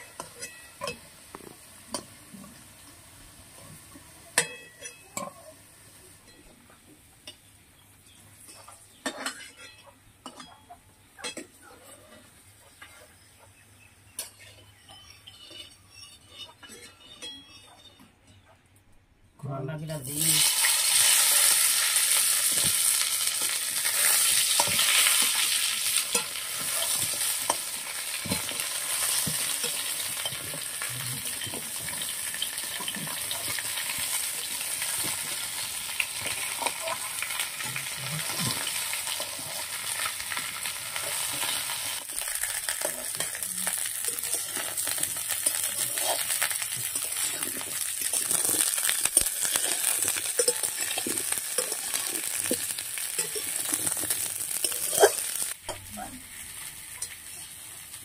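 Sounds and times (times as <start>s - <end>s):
food sizzling in a wok: 0.0s - 6.4s, 20.0s - 58.0s
metal spatula clicking and scraping: 14.1s - 18.5s, 23.9s - 35.1s, 41.4s - 55.6s.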